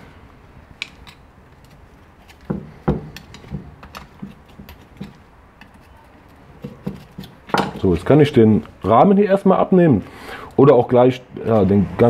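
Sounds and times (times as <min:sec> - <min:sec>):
screwdriver prying plastic tabs: 0:02.3 - 0:05.9.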